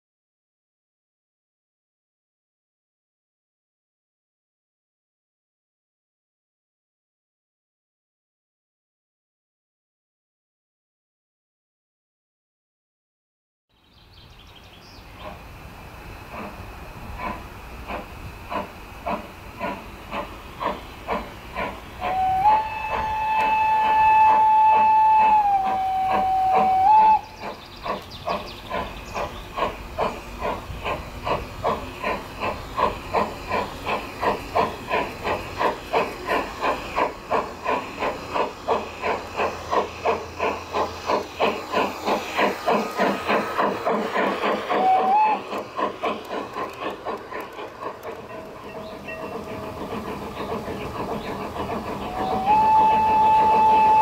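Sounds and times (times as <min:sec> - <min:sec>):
steam locomotive chuffing: 0:14.4 - 0:54.0
steam locomotive whistle: 0:22.0 - 0:27.4, 0:44.7 - 0:45.6, 0:52.0 - 0:54.0.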